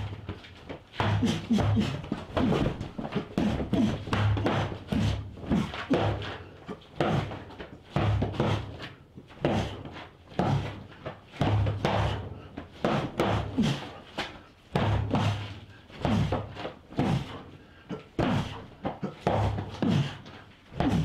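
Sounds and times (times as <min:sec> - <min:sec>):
cloth weapon thudding on dummy: 0:20.8 - 0:21.0.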